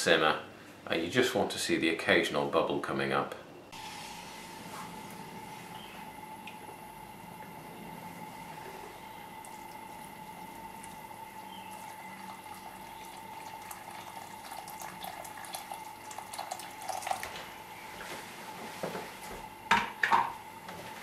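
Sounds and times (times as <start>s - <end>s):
liquid bubbling and popping: 9.2s - 17.3s
water pouring and splashing: 9.4s - 17.4s.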